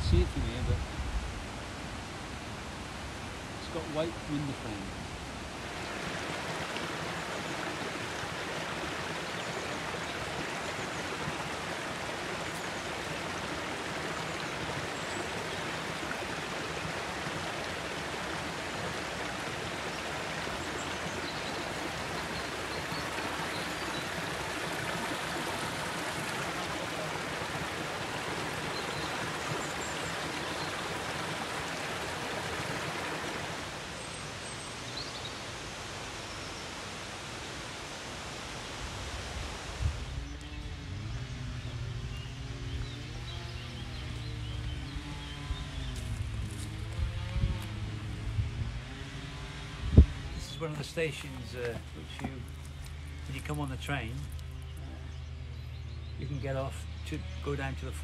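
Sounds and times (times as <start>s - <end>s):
water rushing over rocks: 2.6s - 39.8s.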